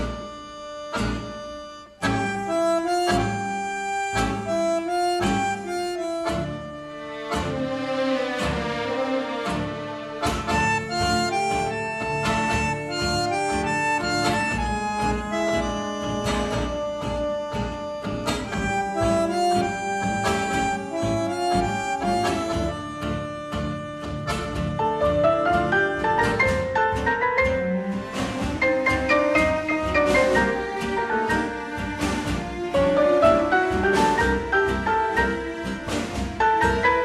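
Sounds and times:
instrumental music with beat: 0.0 - 37.0.

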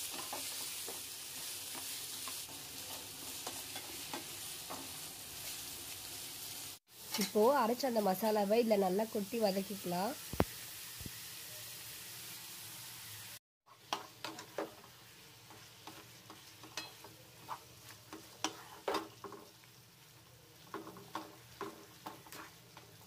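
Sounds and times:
vegetables sizzling in oil: 0.0 - 23.0
spatula scraping a pan: 13.7 - 19.6, 20.6 - 23.0.

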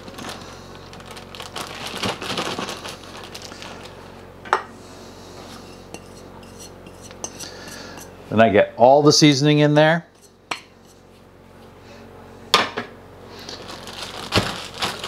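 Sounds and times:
plastic bag rustling and crinkling: 0.0 - 4.1, 13.4 - 15.0.

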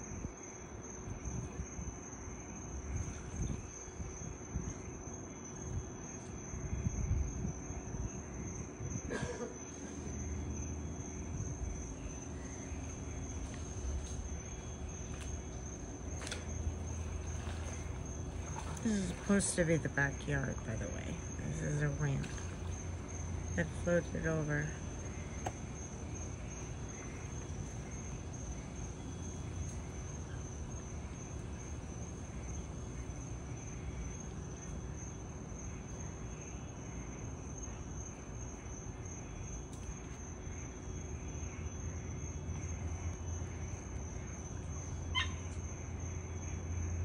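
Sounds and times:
crickets trilling: 0.0 - 47.0
low steady rumble: 9.8 - 37.5.

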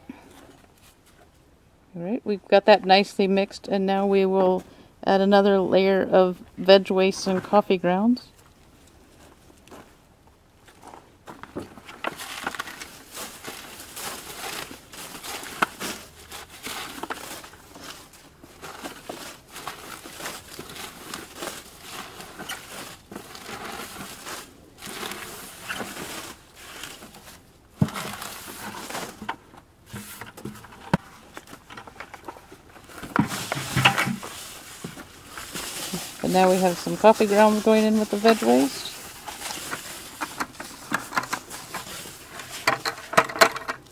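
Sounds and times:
vegetable leaves rustling: 11.9 - 30.2, 30.8 - 42.7.

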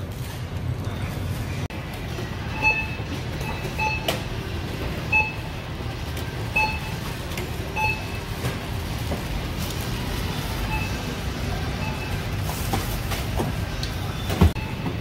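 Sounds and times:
barcode scanner beeping: 6.5 - 7.1, 7.7 - 8.3, 10.6 - 12.4.

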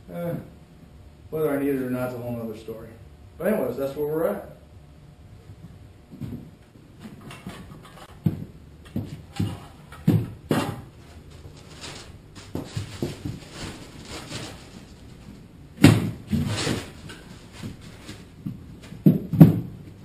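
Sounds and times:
knocks and thumps on wooden floor: 6.1 - 10.9, 18.4 - 19.8.

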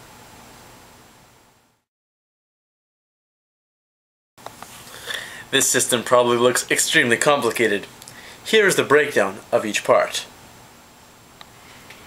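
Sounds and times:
faint recording hiss: 0.0 - 1.9, 4.4 - 12.0.

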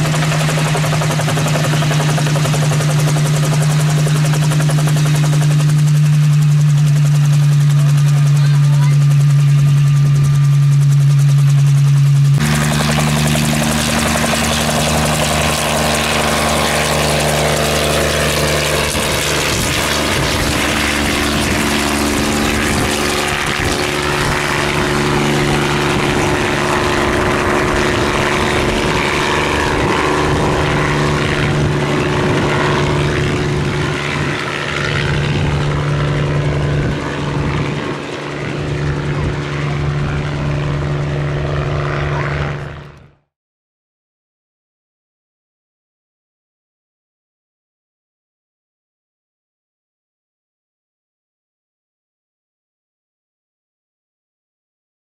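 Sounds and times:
helicopter engine and rotor: 0.0 - 43.3.

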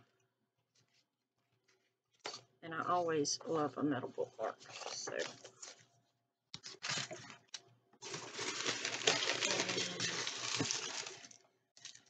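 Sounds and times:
packaging crinkly rustling: 4.4 - 6.0, 6.6 - 12.0.

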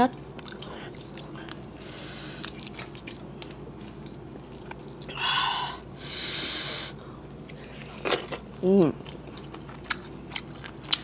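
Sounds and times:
wet chewing: 0.2 - 5.2, 9.0 - 11.0
hissy sucking sound: 6.0 - 7.0.

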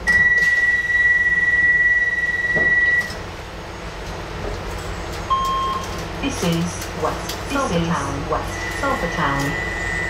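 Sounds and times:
low hum of stationary train: 0.0 - 10.0
high electronic warning tone: 0.1 - 3.1, 8.5 - 10.0.

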